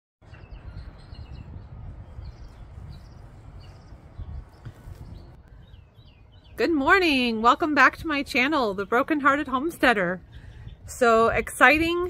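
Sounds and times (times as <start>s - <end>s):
small birds chirping: 0.2s - 11.9s
steady low rumble: 0.2s - 12.0s.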